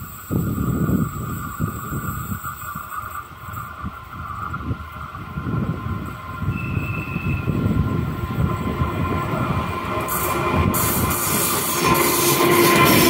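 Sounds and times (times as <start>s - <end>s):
locomotive engine rumble: 0.0s - 13.0s
wheel squeal: 6.3s - 7.9s.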